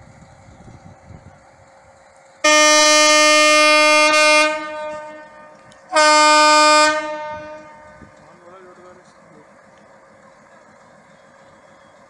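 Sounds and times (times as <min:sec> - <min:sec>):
locomotive horn blasts: 0:02.4 - 0:08.1.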